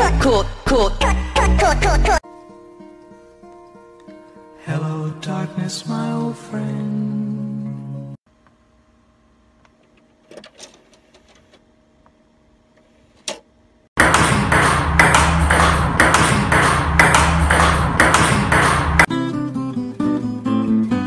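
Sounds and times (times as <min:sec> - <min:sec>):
loud music with heavy bass: 0:00.0 - 0:02.2, 0:14.0 - 0:19.1.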